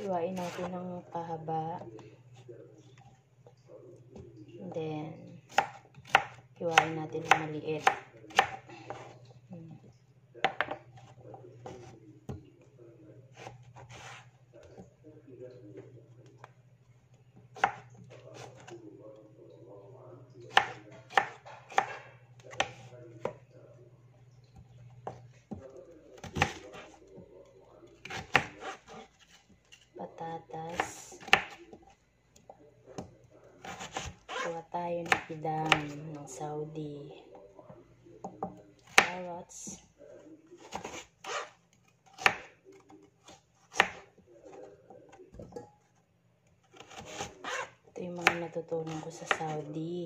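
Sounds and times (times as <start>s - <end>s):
low steady hum: 0.0s - 50.0s
knife chopping on cutting board: 5.5s - 9.2s, 10.4s - 12.4s, 13.4s - 14.9s, 17.5s - 18.8s, 20.5s - 23.4s, 25.0s - 27.0s, 28.0s - 29.8s, 30.7s - 31.8s, 33.0s - 36.0s, 38.2s - 39.3s, 40.6s - 44.6s, 46.7s - 49.6s.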